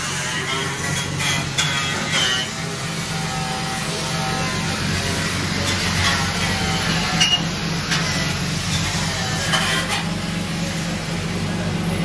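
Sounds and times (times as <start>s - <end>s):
car engine idling: 2.6s - 12.0s.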